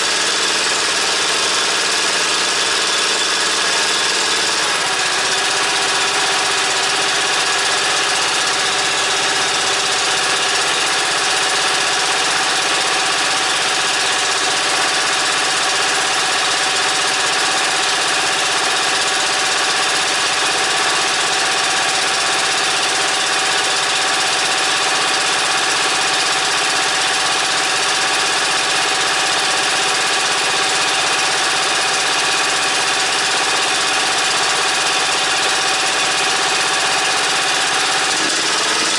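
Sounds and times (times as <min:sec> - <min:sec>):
small petrol engine running: 0:00.0 - 0:38.9.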